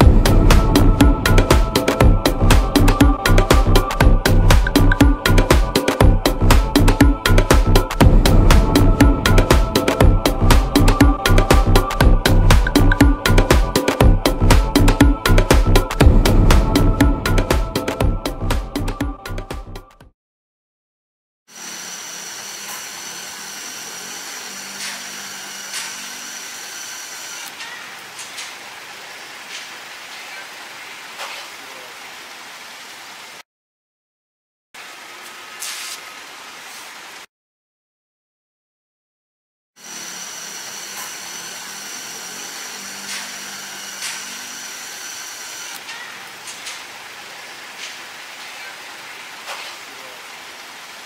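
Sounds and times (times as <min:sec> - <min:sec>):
fuel pump hum and hiss: 0:21.5 - 0:30.1, 0:34.8 - 0:37.2, 0:39.8 - 0:51.0.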